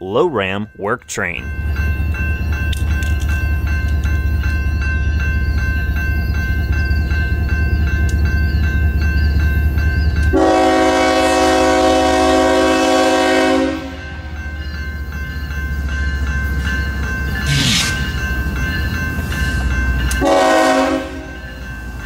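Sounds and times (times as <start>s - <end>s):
diesel locomotive engine rumble: 0.0s - 22.0s
train air horn blast: 10.3s - 14.0s, 20.2s - 21.3s.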